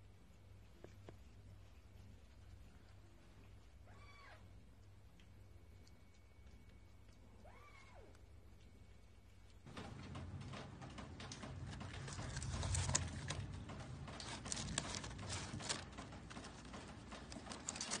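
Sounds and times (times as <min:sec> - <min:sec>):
low hum: 0:04.7 - 0:17.9.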